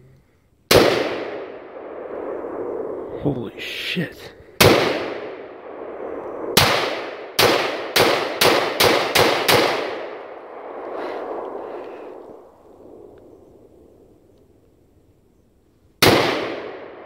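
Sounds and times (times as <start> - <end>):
rifle shots echoing: 0.7 - 3.1, 4.6 - 13.0, 16.0 - 17.0.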